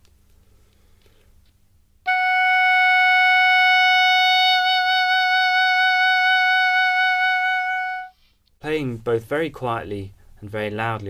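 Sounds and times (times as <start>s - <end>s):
oboe holding a long note: 2.1s - 8.2s.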